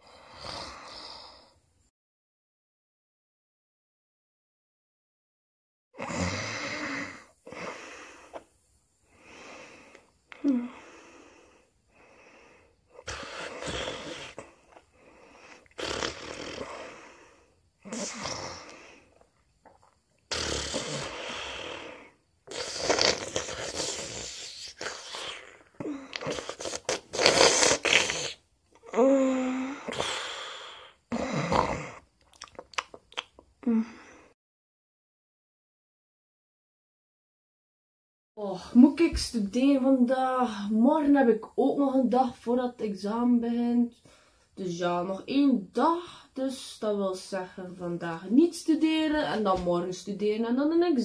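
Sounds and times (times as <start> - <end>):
person snoring: 0.0 - 1.5, 6.0 - 8.4, 9.2 - 19.1, 20.3 - 32.0.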